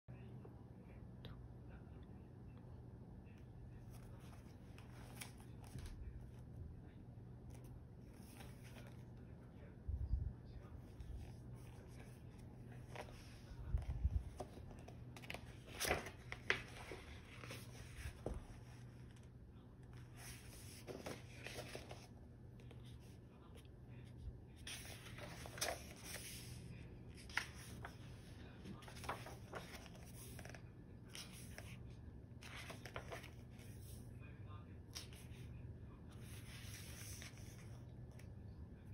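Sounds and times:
book pages turning: 3.7 - 6.5, 7.4 - 9.3, 10.7 - 34.0, 34.9 - 35.4, 36.1 - 38.3.

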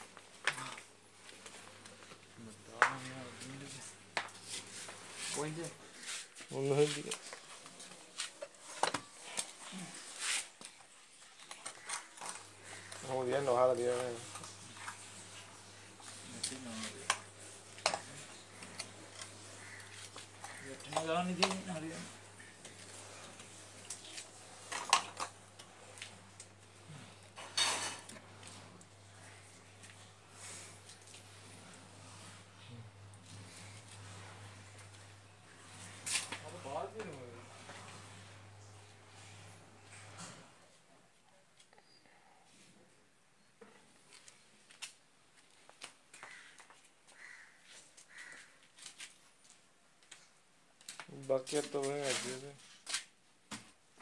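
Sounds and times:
rustling scrape: 3.2 - 26.0, 33.2 - 38.6, 51.4 - 53.1.

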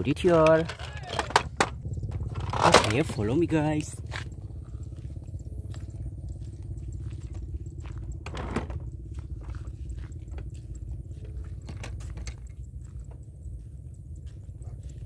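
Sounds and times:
steady low rumble: 0.0 - 15.0
footsteps crunching on gravel: 3.1 - 15.0.

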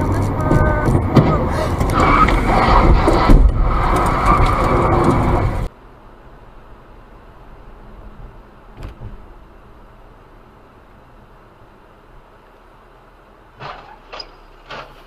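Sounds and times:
rumbling and clattering inside car: 0.0 - 5.7
car interior hum: 0.0 - 15.0.

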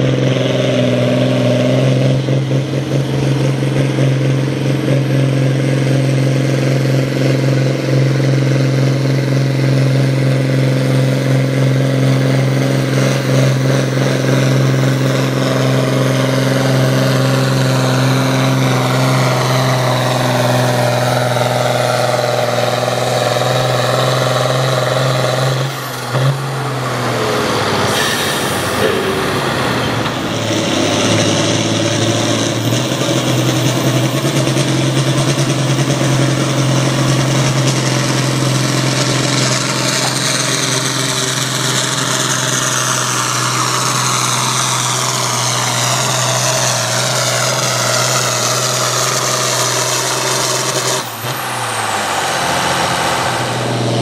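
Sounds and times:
diesel tractor engine under load: 0.0 - 54.0
high turbo whine: 0.0 - 54.0.

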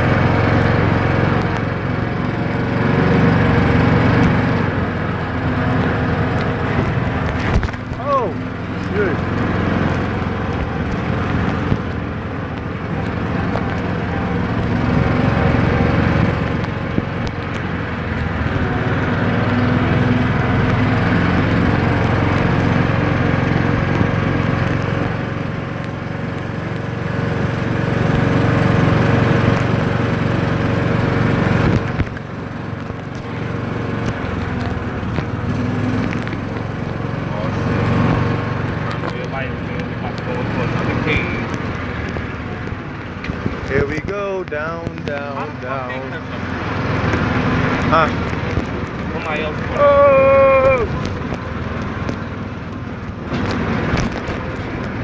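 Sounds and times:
utility vehicle engine running: 0.0 - 55.0.

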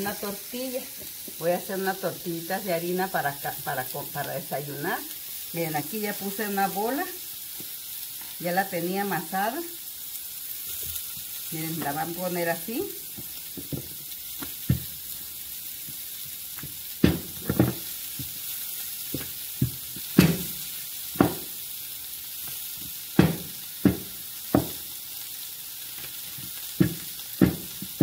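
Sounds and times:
food sizzling in a pan: 0.0 - 28.0
rolling pin knocking on counter: 17.0 - 17.8, 21.2 - 21.5, 23.2 - 24.8, 26.8 - 28.0.

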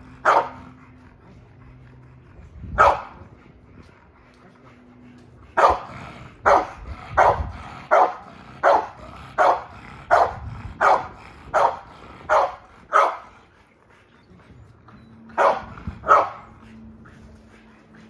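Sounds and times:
dog barking: 0.2 - 0.6, 2.8 - 3.2, 5.6 - 13.2, 15.4 - 16.5.

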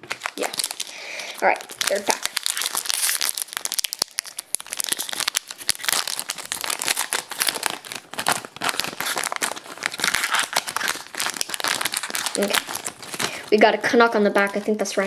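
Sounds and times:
foil wrapper tearing and crinkling: 0.0 - 15.0.

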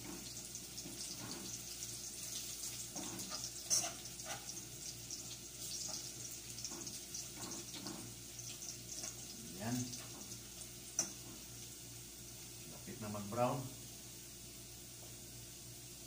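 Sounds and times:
garlic sizzling in hot oil: 0.0 - 12.7
spoon stirring and scraping pot: 2.2 - 9.2.

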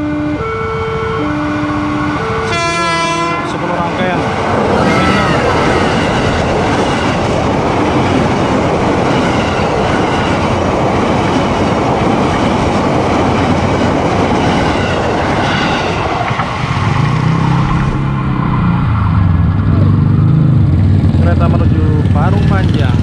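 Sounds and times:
electric train passing: 0.0 - 23.0
motorcycle engines humming: 16.2 - 23.0.

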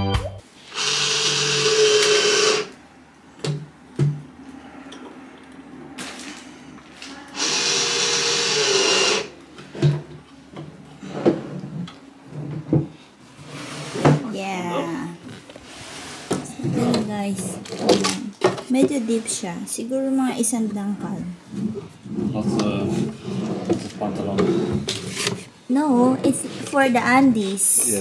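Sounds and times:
cordless drill motor whine: 0.7 - 2.8, 7.3 - 9.3.

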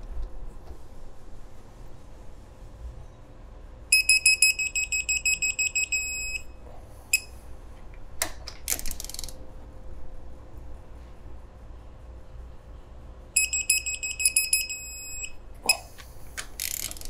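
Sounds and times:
torque wrench beeping: 3.9 - 6.5, 7.1 - 7.4, 13.4 - 15.4
wrench ratchet clicks: 8.7 - 9.4, 16.4 - 17.0.

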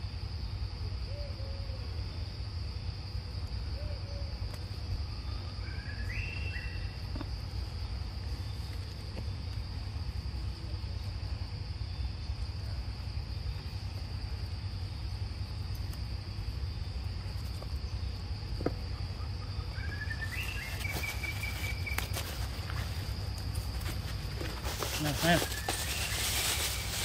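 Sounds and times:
high-pitched insect chorus: 0.0 - 27.0.

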